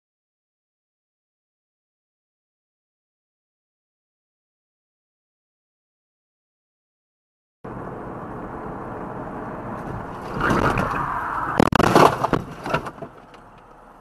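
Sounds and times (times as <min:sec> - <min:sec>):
road and engine noise: 0:07.6 - 0:14.0
tyres skidding: 0:07.7 - 0:14.0
knocks and rattles: 0:11.6 - 0:13.6.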